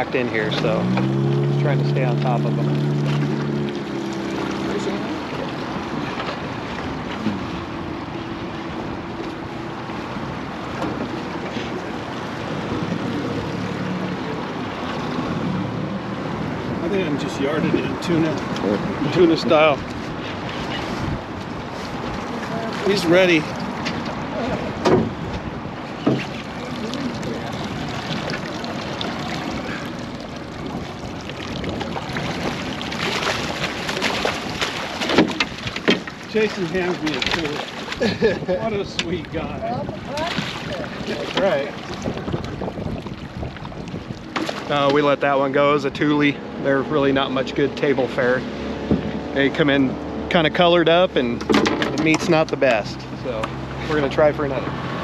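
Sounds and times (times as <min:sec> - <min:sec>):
water lapping against boat hull: 0:00.0 - 0:55.0
wind: 0:00.0 - 0:55.0
fish splashing at the surface: 0:00.6 - 0:07.7, 0:26.0 - 0:38.4, 0:40.0 - 0:44.9
wind on microphone: 0:17.6 - 0:36.2, 0:37.3 - 0:44.9.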